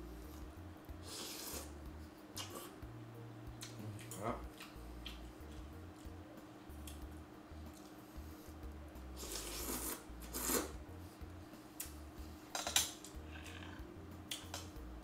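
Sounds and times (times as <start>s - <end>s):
faint steady hum: 0.0s - 15.0s
wet chewing and lip-smacking: 3.6s - 6.1s.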